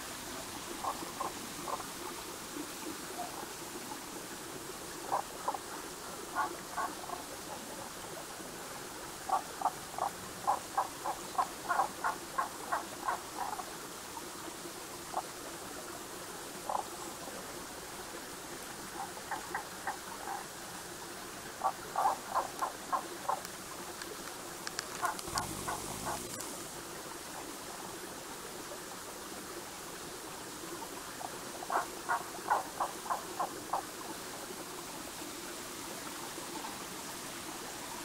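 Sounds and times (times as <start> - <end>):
mountain stream rushing: 0.0 - 38.0
frogs calling: 0.8 - 2.0, 5.0 - 7.6, 9.2 - 13.7, 16.6 - 17.0, 18.9 - 20.6, 21.5 - 23.6, 24.8 - 26.5, 31.6 - 33.9.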